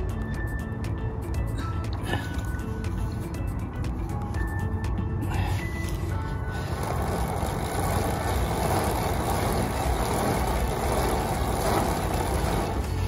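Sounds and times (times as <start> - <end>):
bicycle chain rustling through rag: 5.6 - 13.0.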